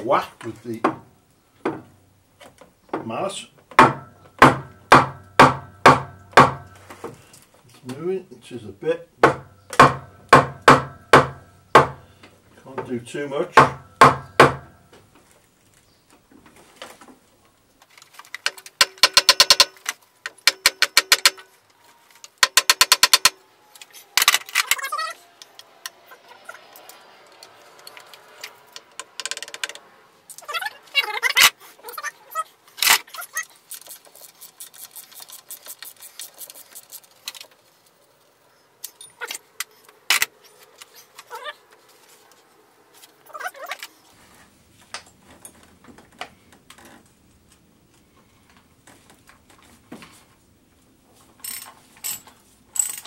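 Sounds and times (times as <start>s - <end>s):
sharp metallic knocks: 3.7s - 6.8s, 9.2s - 12.1s, 13.5s - 14.8s, 18.8s - 21.5s, 22.4s - 23.4s
metal tools clinking and rattling: 38.8s - 41.4s, 51.4s - 53.0s.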